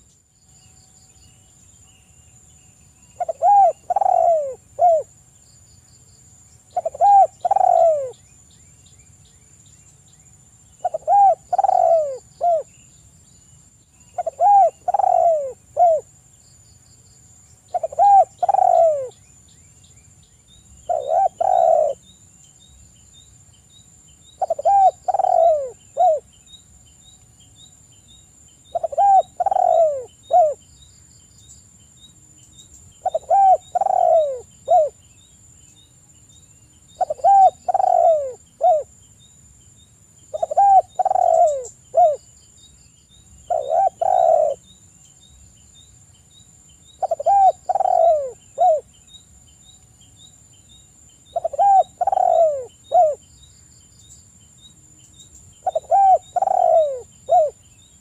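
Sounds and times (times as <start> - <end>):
dove cooing: 3.2 - 5.1, 6.7 - 8.2, 10.8 - 12.7, 14.2 - 16.1, 17.7 - 19.2, 20.9 - 22.0, 24.4 - 26.2, 28.7 - 30.6, 33.0 - 35.0, 37.0 - 38.9, 40.3 - 42.2, 43.5 - 44.6, 47.0 - 48.9, 51.3 - 53.2, 55.6 - 57.6.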